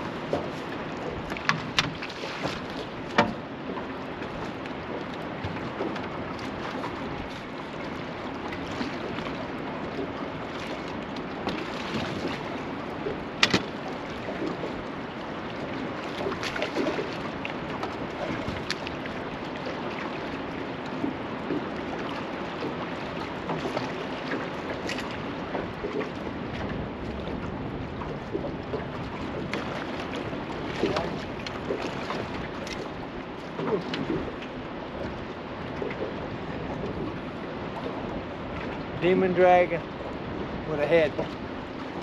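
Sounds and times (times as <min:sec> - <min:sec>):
sharp knocks on boat: 0:00.0 - 0:07.5, 0:08.3 - 0:14.8, 0:20.9 - 0:36.2
river water rushing: 0:00.0 - 0:27.6, 0:28.8 - 0:42.0
wind: 0:00.0 - 0:42.0.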